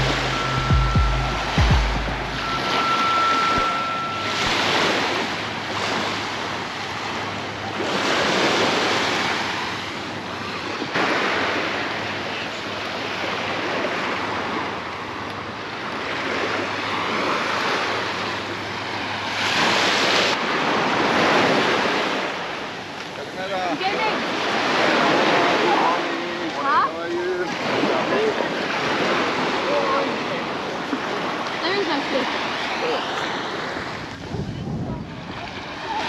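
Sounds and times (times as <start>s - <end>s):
waves washing onto beach: 0.0s - 36.0s
wind on microphone: 33.3s - 36.0s.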